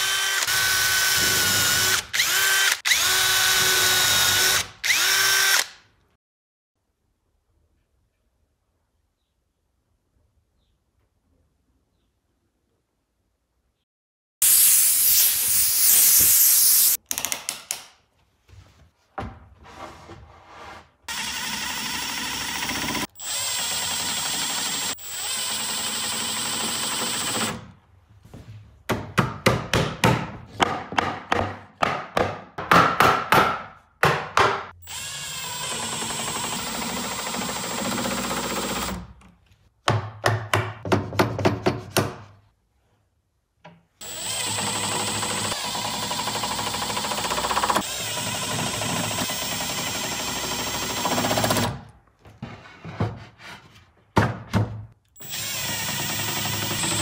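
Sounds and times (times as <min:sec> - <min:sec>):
drill motor whining: 0:00.0 - 0:05.7, 0:21.1 - 0:27.6, 0:34.8 - 0:39.0, 0:44.0 - 0:51.7, 0:55.2 - 0:57.0.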